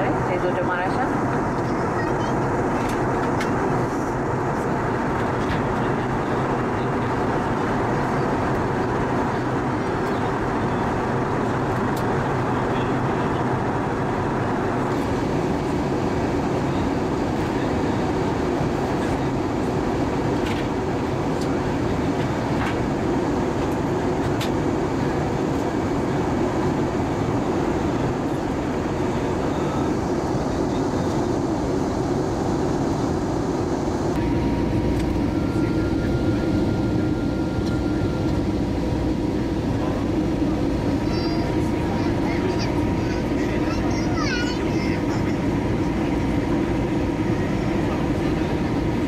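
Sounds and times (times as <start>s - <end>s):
jet engine and airflow noise: 0.0s - 49.0s.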